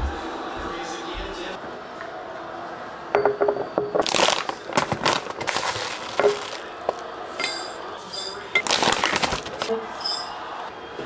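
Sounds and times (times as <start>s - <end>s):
plastic pouch rustling: 4.0s - 7.0s, 8.6s - 10.2s.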